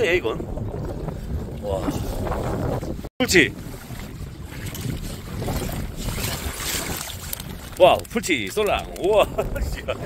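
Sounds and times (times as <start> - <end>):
lapping seawater: 0.0 - 10.0
wind rumbling on microphone: 0.0 - 10.0.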